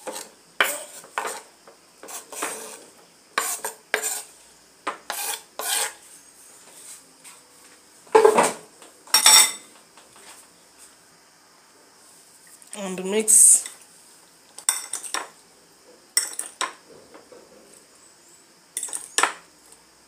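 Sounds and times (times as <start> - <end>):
knife scraping wooden cutting board: 0.0 - 4.3, 5.1 - 6.0.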